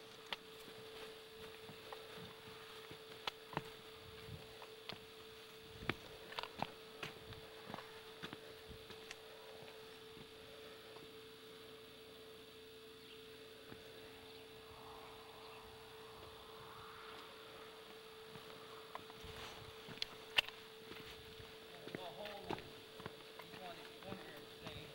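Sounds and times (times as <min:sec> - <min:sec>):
faint steady hum: 0:00.0 - 0:24.9
light hiss: 0:13.9 - 0:21.2.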